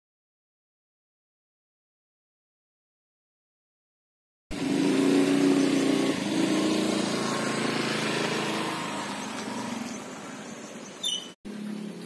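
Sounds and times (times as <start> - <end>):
scooter engine humming: 4.5 - 12.0.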